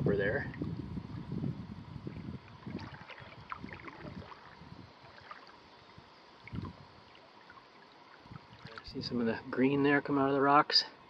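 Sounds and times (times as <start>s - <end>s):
paddle splashing and water lapping: 2.0s - 9.0s.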